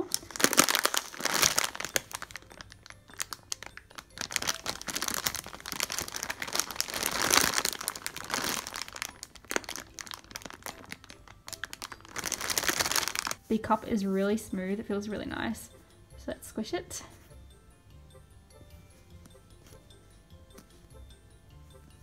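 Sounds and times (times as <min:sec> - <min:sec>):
plastic bag crinkling: 0:00.0 - 0:13.5.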